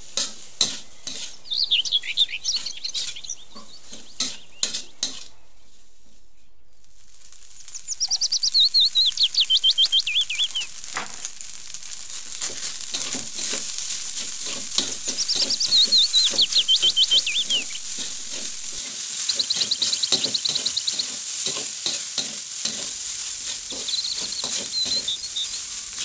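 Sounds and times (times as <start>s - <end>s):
metal spatula scraping a wok: 0.0s - 6.2s, 10.7s - 26.0s
food sizzling: 0.0s - 26.0s
songbird singing: 0.9s - 5.7s, 7.6s - 10.8s, 14.6s - 21.1s, 23.7s - 25.6s.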